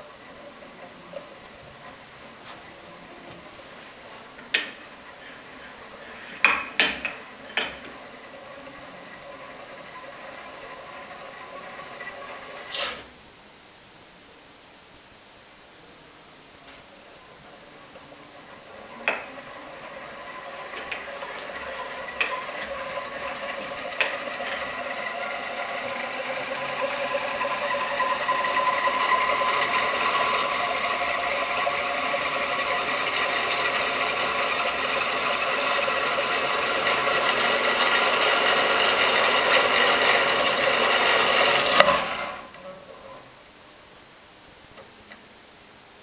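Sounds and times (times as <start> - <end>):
electric motor whirring: 18.8 - 42.5
hand knocking spinning disc: 19.1 - 35.3.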